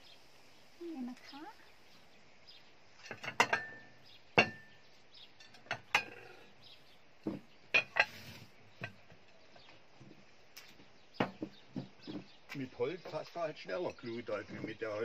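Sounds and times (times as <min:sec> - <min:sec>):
dinner plates clinking: 0:03.0 - 0:06.5, 0:07.2 - 0:09.3.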